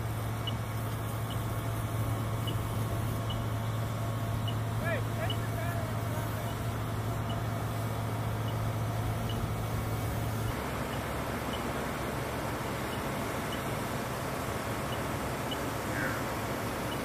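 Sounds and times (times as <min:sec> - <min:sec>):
fire hose streams spraying: 0:00.0 - 0:17.0.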